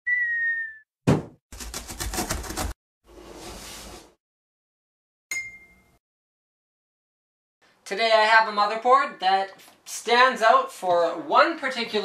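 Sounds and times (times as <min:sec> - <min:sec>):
bright ding: 0:05.3 - 0:06.0.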